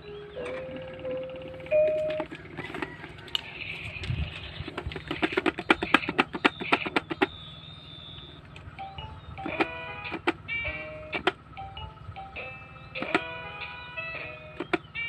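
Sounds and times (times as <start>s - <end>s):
button clicks and taps: 9.4s - 10.4s.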